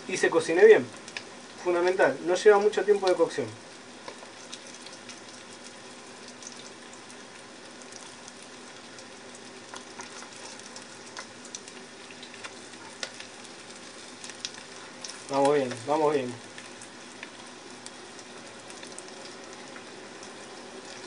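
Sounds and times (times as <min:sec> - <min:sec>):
fish frying in hot oil: 0:00.0 - 0:21.0
oil crackling pops: 0:01.0 - 0:01.4, 0:09.0 - 0:21.0.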